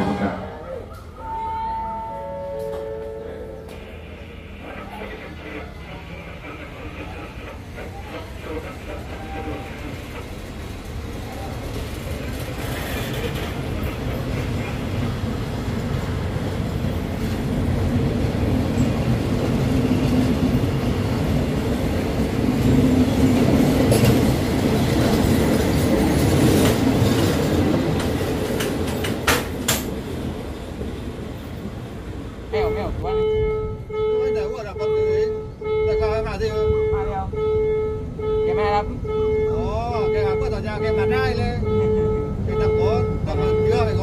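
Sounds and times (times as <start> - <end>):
train coaches rolling past: 0.0 - 44.0
wheels clattering over rail joints: 7.5 - 17.5, 23.4 - 30.4.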